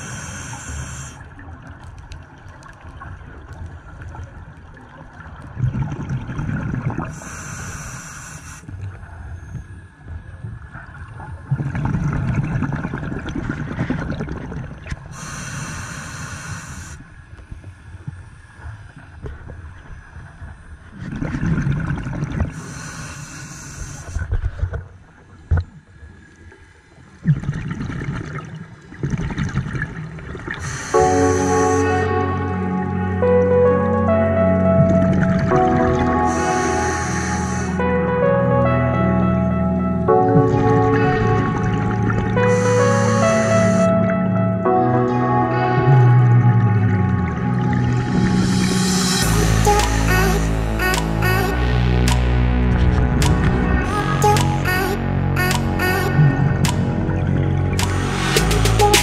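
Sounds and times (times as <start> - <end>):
exhaled bubbles gurgling: 0.0 - 7.6, 8.7 - 15.3, 20.9 - 22.8, 27.1 - 32.1
regulator hiss: 7.2 - 8.7, 15.2 - 17.0, 30.6 - 31.9, 36.3 - 37.8.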